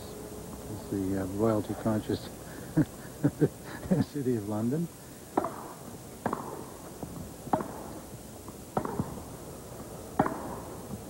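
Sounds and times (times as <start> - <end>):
tennis ball hit by racket: 5.3 - 6.7, 7.5 - 8.0, 8.8 - 9.2, 10.2 - 10.7.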